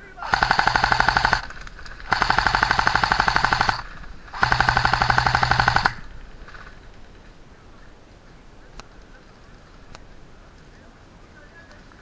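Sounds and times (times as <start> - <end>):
airsoft rifle full auto bursts: 0.2 - 6.1.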